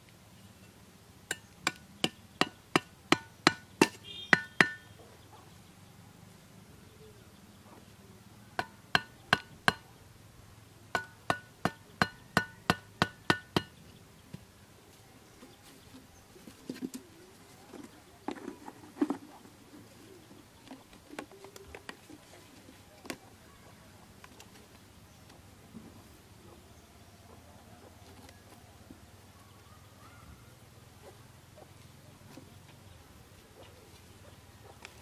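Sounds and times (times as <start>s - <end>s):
metal blade knocking wooden stake: 1.3s - 4.9s, 8.6s - 9.9s, 11.0s - 13.8s.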